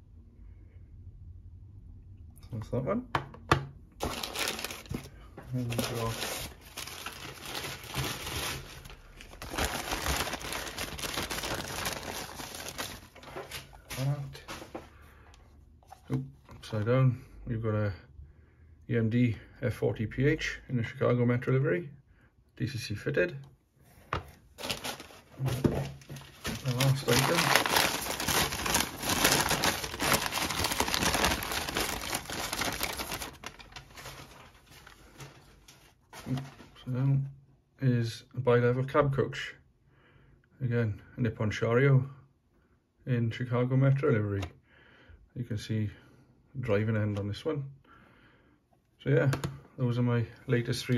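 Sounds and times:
plastic wrapping crinkling: 0:04.0 - 0:14.9, 0:24.6 - 0:36.8
newspaper rustling and crackling: 0:04.0 - 0:15.0, 0:24.6 - 0:36.8.

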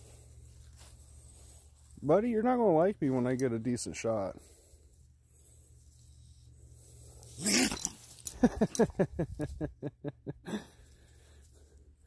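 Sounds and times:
raccoon growling: 0:07.1 - 0:08.0.

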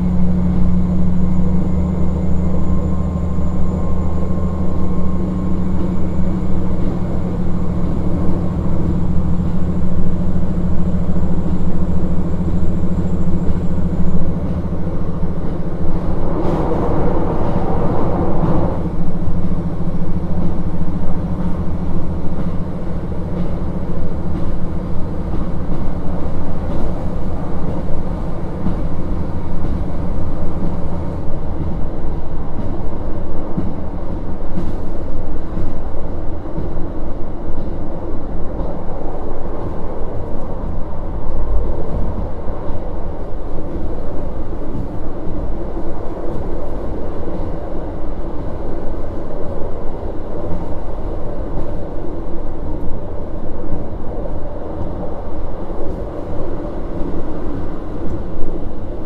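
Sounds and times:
diesel engine drone: 0:00.0 - 0:34.9
wheel and rail noise: 0:00.0 - 0:59.0.

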